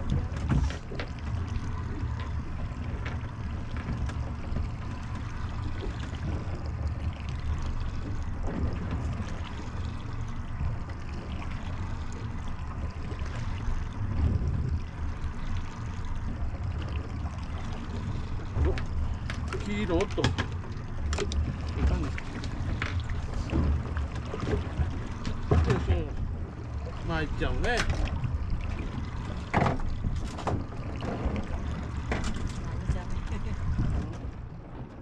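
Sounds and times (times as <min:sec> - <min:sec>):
low rumble: 0:00.0 - 0:35.0
water lapping against boat hull: 0:00.0 - 0:35.0
faint ticks and knocks: 0:00.1 - 0:09.6.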